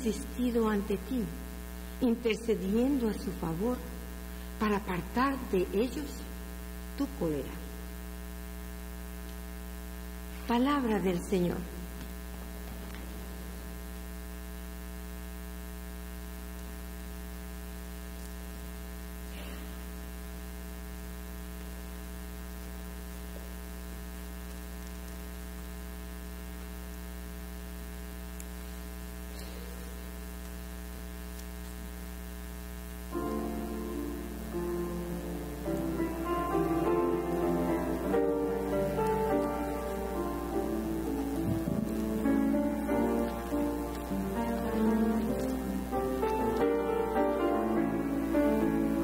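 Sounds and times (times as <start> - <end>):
electrical mains hum: 0.0 - 49.0
keyboard music: 33.1 - 49.0.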